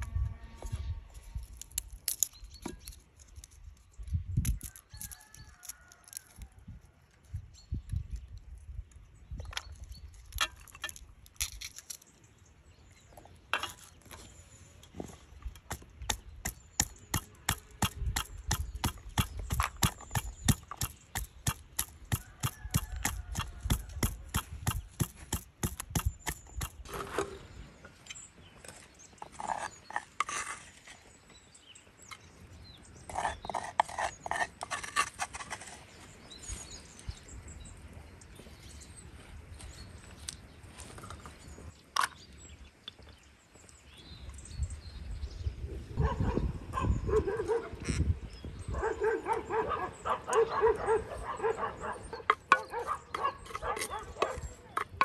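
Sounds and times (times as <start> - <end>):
pestle pounding in wooden mortar: 16.0 - 26.8.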